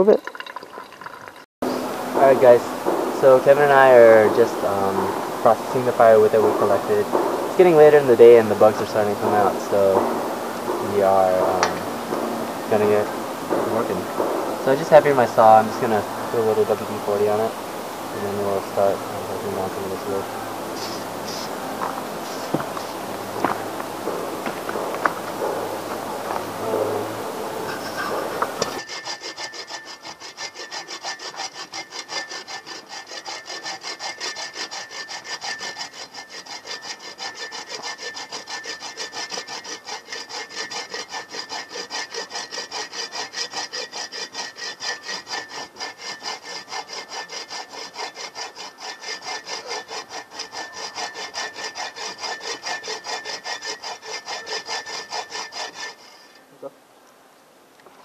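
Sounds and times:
hand saw cutting a dry branch: 0:01.6 - 0:56.4.

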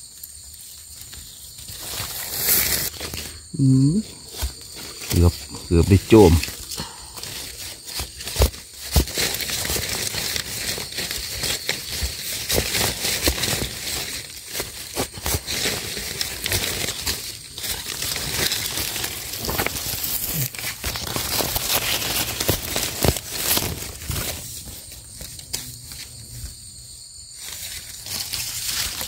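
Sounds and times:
rustling leaves: 0:00.0 - 0:29.0
hand tool scraping soil: 0:01.2 - 0:03.5, 0:04.2 - 0:26.6.

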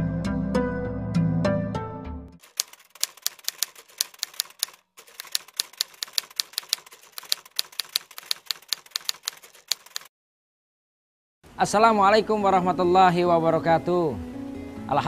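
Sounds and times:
typewriter key clicks: 0:02.4 - 0:10.1.

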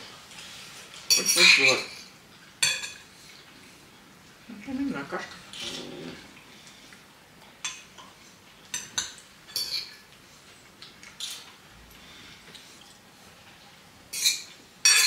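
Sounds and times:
cutlery clinking against a dish: 0:01.0 - 0:03.1, 0:07.6 - 0:10.1, 0:14.1 - 0:15.0.

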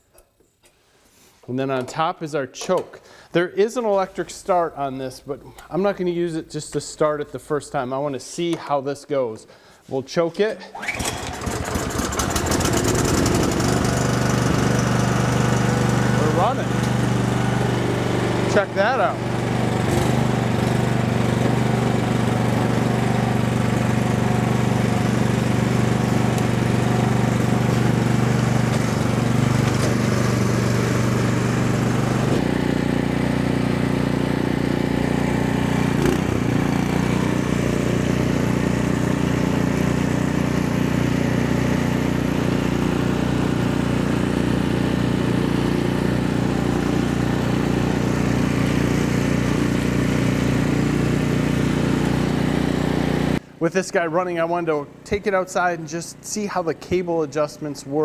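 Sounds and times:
snow blower engine running: 0:10.7 - 0:53.6, 0:54.2 - 0:57.0.

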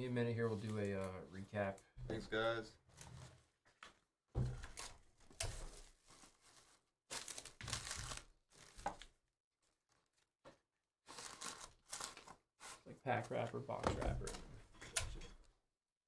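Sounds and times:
plastic wrappers crinkling: 0:04.6 - 0:13.5.

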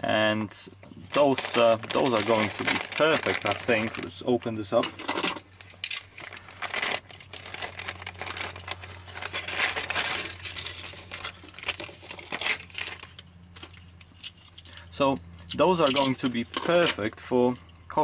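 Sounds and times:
plastic bag crinkling: 0:01.0 - 0:04.8, 0:05.6 - 0:13.2
plastic pieces clinking on bench: 0:01.2 - 0:04.1, 0:04.7 - 0:14.7, 0:15.7 - 0:17.1.

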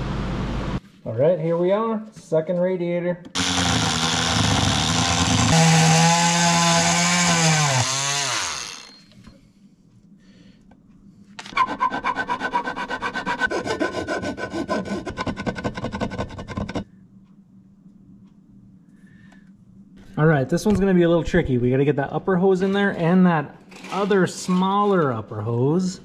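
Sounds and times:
rasping cutting on metal: 0:03.4 - 0:09.0, 0:11.6 - 0:16.8
oscillating power tool whining: 0:03.4 - 0:09.1.

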